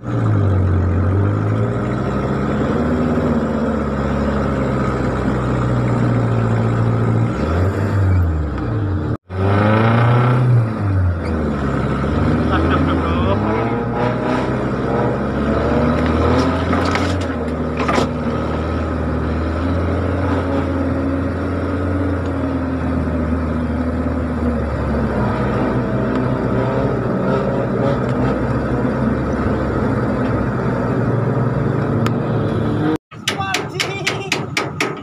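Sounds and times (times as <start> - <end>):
vehicle engine at low revs: 0.0 - 33.2
sharp knocks: 33.1 - 35.0.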